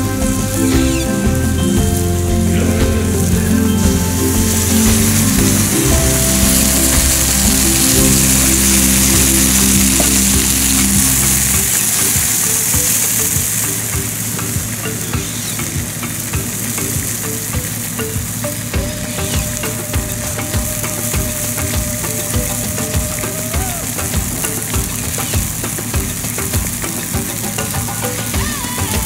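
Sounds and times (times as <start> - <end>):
food sizzling in a pan: 0.5 - 18.0.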